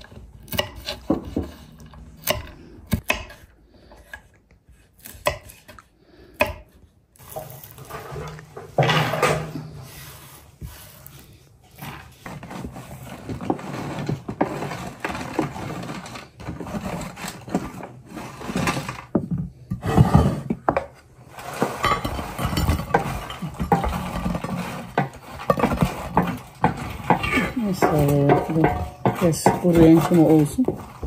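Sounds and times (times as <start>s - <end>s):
spatula scraping baking tray: 7.2s - 31.0s.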